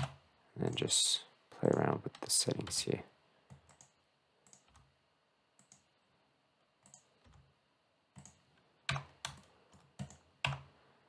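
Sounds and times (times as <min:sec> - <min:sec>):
keyboard and mouse clicking: 0:03.5 - 0:04.9, 0:05.6 - 0:05.9, 0:06.8 - 0:07.4, 0:08.2 - 0:10.7.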